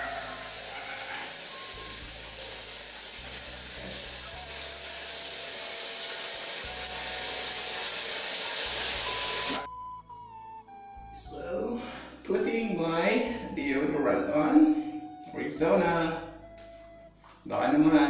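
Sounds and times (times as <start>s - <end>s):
shower spray running: 0.0s - 9.7s.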